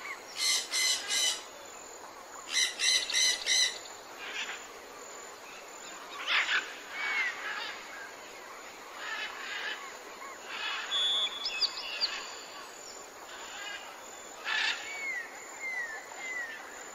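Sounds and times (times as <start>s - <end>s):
faint outdoor hiss: 0.0s - 16.9s
birds chirping: 10.5s - 13.6s.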